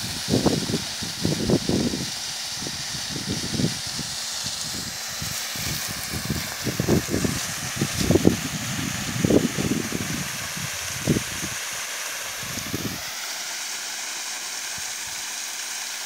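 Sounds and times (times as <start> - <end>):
wind buffeting microphone: 0.0 - 11.6, 12.4 - 13.0
water spray hissing: 0.0 - 16.0.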